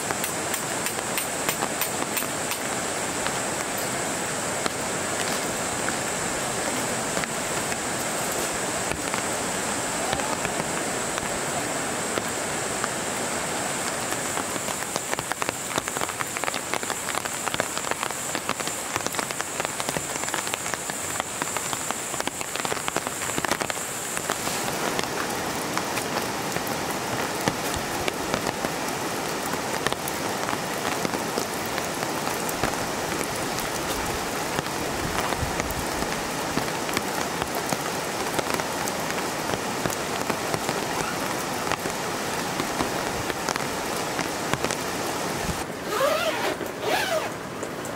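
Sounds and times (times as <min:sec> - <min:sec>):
steady rain falling: 0:00.0 - 0:47.9.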